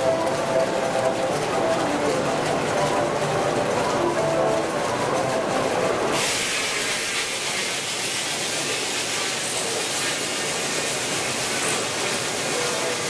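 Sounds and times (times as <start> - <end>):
steam sawmill hissing: 6.1 - 13.0.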